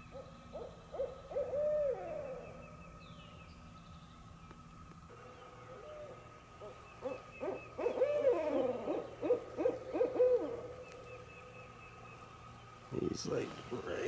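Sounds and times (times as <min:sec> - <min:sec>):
owls hooting in duet: 0:00.0 - 0:02.9, 0:05.4 - 0:11.8.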